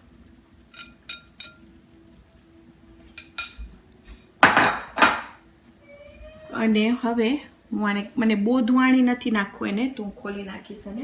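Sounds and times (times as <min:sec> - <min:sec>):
spoon clinking on glass bowl: 0:00.1 - 0:02.4.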